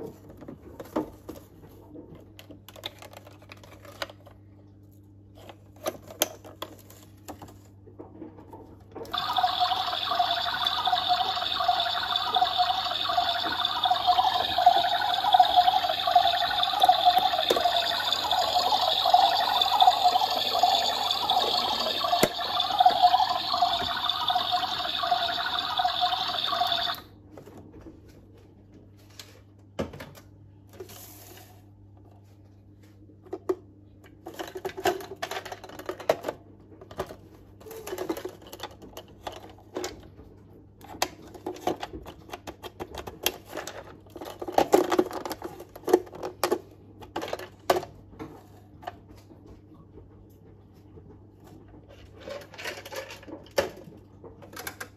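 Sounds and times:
toy washing machine motor running: 0:09.1 - 0:27.1.

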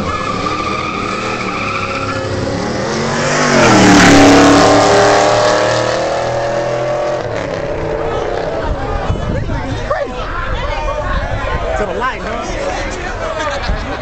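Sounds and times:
car engines accelerating hard: 0:00.0 - 0:09.9.

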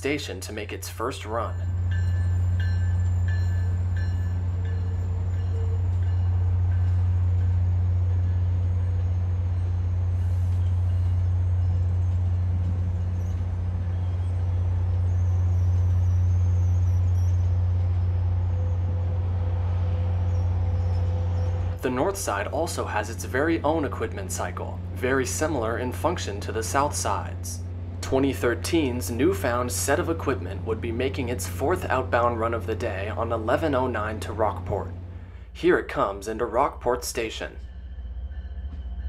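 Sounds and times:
diesel locomotive engine drone: 0:00.0 - 0:39.0.

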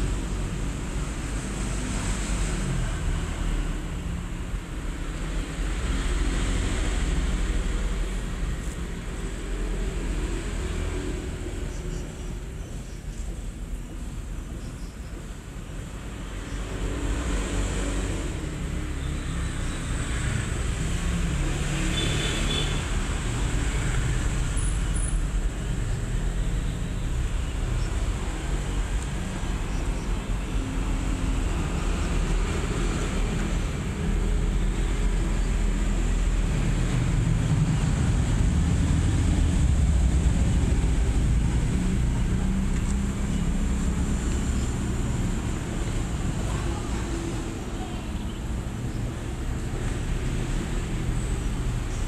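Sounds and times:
low rumbling background noise: 0:35.4 - 0:48.0.

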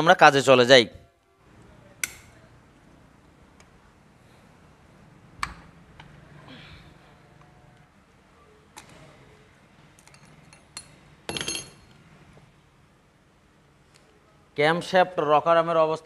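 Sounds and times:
metal tools clicking: 0:10.0 - 0:11.9
ringing metallic clinks: 0:10.1 - 0:11.8.

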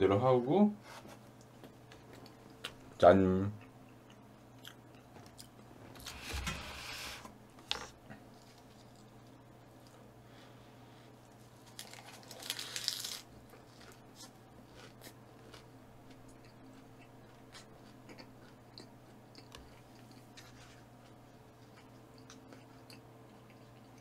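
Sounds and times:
quiet chewing with clicks: 0:01.4 - 0:03.0, 0:03.6 - 0:05.7, 0:13.5 - 0:24.0.

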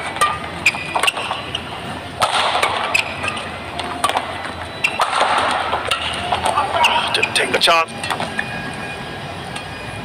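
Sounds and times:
shoes squeaking on court floor: 0:00.0 - 0:02.0, 0:02.6 - 0:07.5
rackets hitting shuttlecock: 0:00.0 - 0:07.1.

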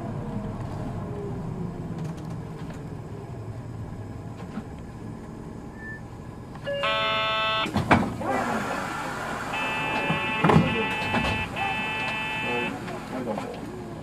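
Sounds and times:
diesel bus engine: 0:00.0 - 0:14.0
road noise: 0:00.0 - 0:14.0
electronic chime: 0:09.6 - 0:12.7.

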